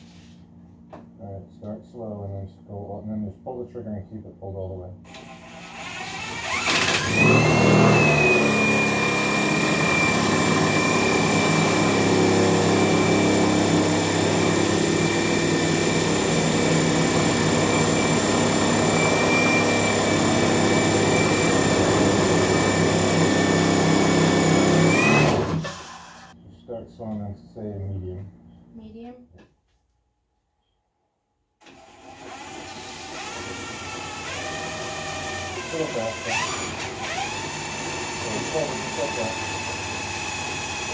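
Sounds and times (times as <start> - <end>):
saw blade cutting wood: 5.1 - 26.3, 31.7 - 40.9
cordless drill whining: 5.1 - 26.4, 31.6 - 40.9.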